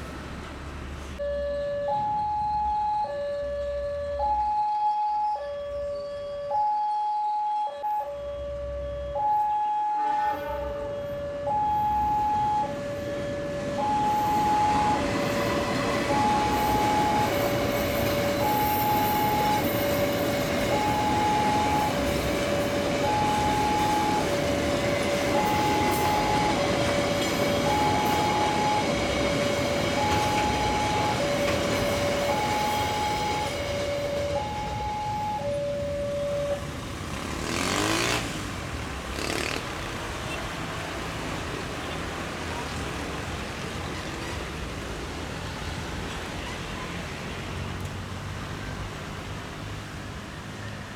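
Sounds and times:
level crossing alarm chime: 1.2s - 36.7s
road vehicle passing: 10.5s - 50.9s
freight train rolling past: 10.6s - 39.1s.

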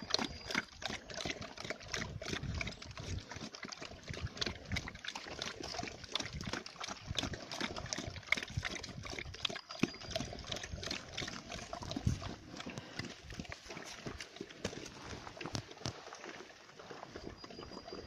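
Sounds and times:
pig smacking and slurping feed: 0.0s - 18.0s.

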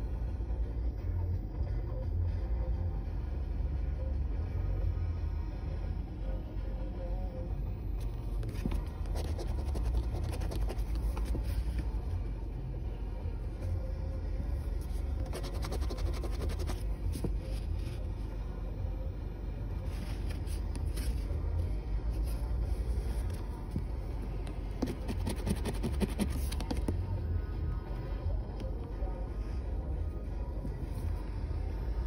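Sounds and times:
low steady rumble: 0.0s - 32.0s
scratch card scraping: 8.4s - 12.0s, 14.9s - 17.8s, 24.8s - 26.9s.

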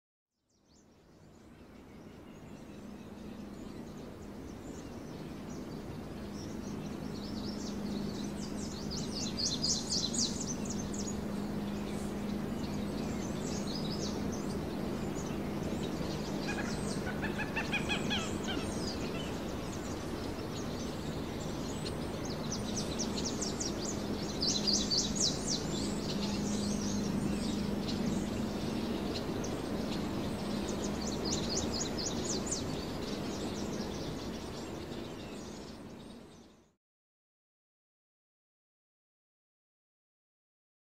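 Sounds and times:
small birds chirping in trills: 0.4s - 36.8s
steady low hum: 0.9s - 36.6s
lower bird call: 4.8s - 35.6s.

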